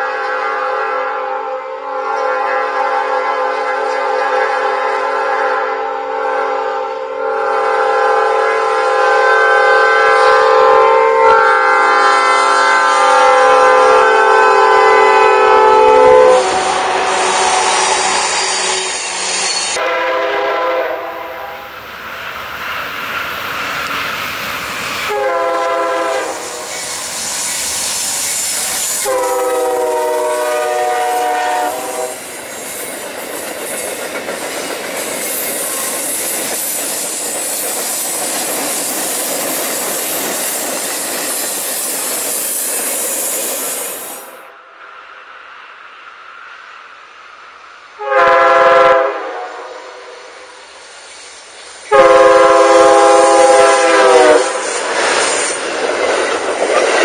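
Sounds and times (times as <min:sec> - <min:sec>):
train air horn: 0:00.0 - 0:21.8, 0:24.9 - 0:27.3, 0:28.5 - 0:32.3, 0:48.0 - 0:50.6, 0:51.9 - 0:54.8
rush of passing train: 0:00.0 - 0:57.0
clickety-clack of wheels on rails: 0:26.1 - 0:30.5, 0:31.7 - 0:44.0, 0:54.5 - 0:57.0.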